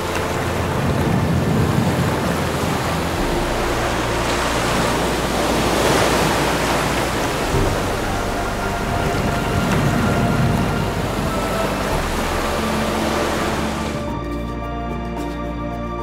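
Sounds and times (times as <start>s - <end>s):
ocean waves washing ashore: 0.0s - 14.2s
low held music notes: 0.0s - 16.0s.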